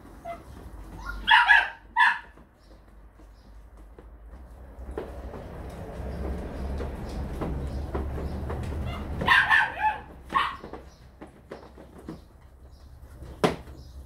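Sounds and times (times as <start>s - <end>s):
puppies yapping: 0.2s - 2.5s, 7.0s - 12.2s.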